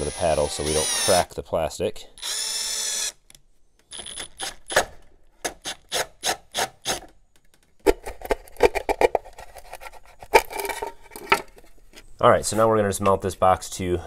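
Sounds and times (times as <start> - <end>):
drill bit rasping through plastic: 0.0 - 1.3, 2.2 - 3.2.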